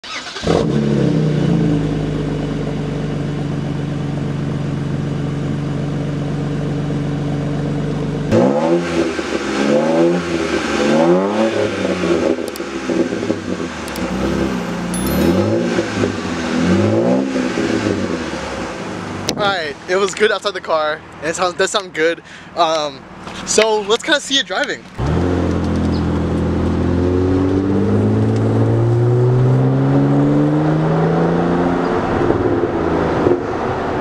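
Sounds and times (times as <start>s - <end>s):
car engine revving: 8.3s - 19.2s.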